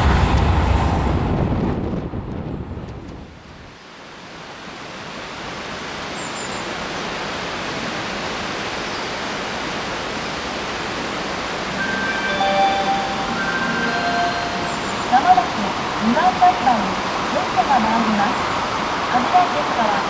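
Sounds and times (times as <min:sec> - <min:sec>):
electric train rumbling in tunnel: 0:10.9 - 0:20.0.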